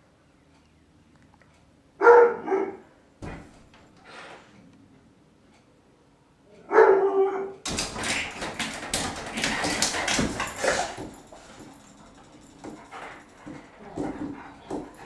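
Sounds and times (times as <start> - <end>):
sliding glass door rattling and scraping: 7.7 - 15.0.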